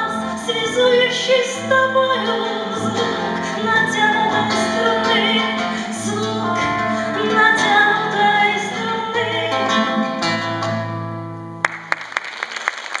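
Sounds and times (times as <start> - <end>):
nylon-string guitar playing: 0.0 - 11.7
hand claps: 11.6 - 13.0.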